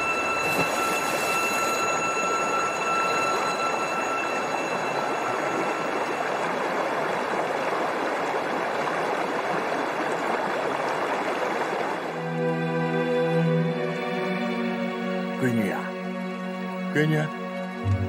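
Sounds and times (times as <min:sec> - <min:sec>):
thin high tones: 0:00.0 - 0:06.6
river water flowing: 0:00.0 - 0:18.0.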